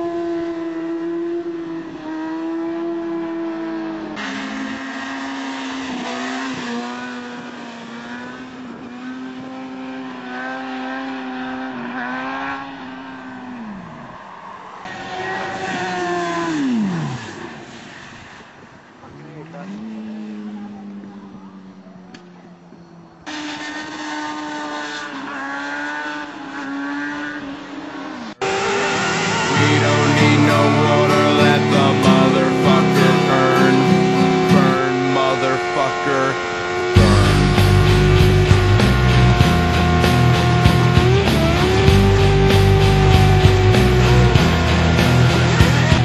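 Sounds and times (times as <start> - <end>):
motorcycle engine revving high: 0.0 - 13.9, 23.3 - 46.0.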